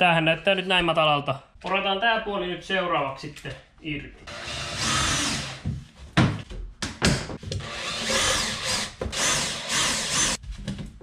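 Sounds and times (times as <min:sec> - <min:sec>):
cordless drill running: 0:04.3 - 0:05.6, 0:07.6 - 0:10.4.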